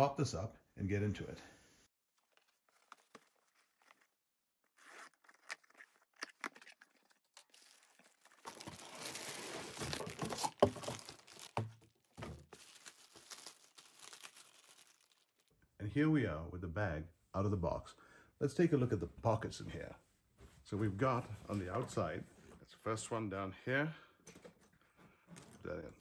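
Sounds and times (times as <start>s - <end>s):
plastic wrapper crinkling: 2.1s - 15.5s.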